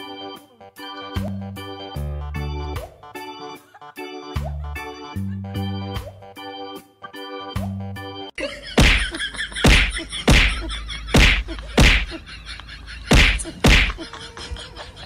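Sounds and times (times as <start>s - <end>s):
loud thwacks: 8.8s - 12.2s, 13.1s - 14.0s.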